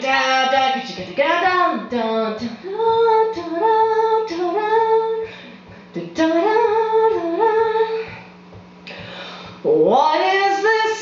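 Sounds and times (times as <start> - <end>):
woman singing without words: 0.0 - 9.0, 9.6 - 11.0
steady low hum: 0.0 - 11.0.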